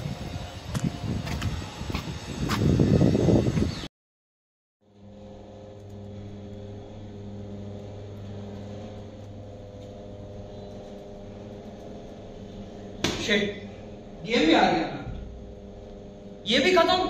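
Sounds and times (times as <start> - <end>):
low drone of held tones: 4.8 - 17.0.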